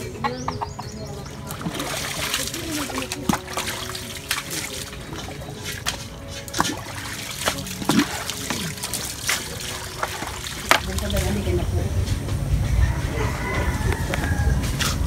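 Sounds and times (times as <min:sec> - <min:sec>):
water trickling and splashing: 0:00.0 - 0:12.7
dipper scooping water splashes: 0:01.1 - 0:12.2.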